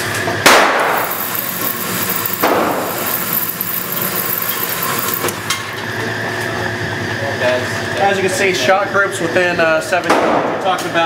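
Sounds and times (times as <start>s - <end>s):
target carrier mechanical running: 0.7s - 6.1s.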